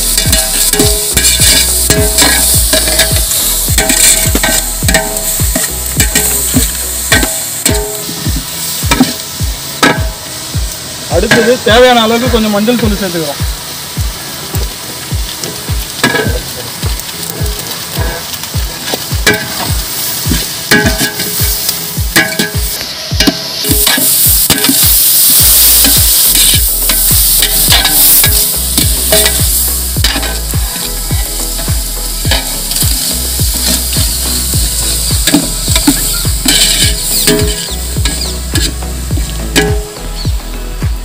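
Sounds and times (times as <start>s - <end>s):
onions sizzling in oil: 0.0s - 41.0s
ladle scraping and knocking pot: 0.1s - 8.2s, 35.2s - 38.8s.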